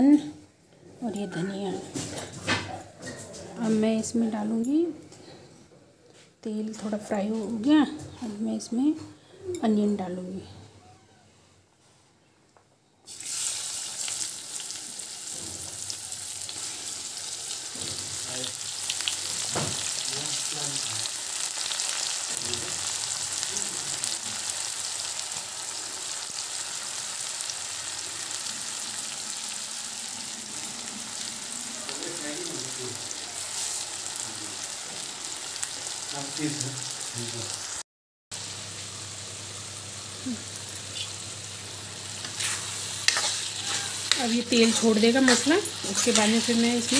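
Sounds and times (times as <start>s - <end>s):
onions sizzling in hot oil: 13.1s - 37.8s, 38.4s - 46.9s.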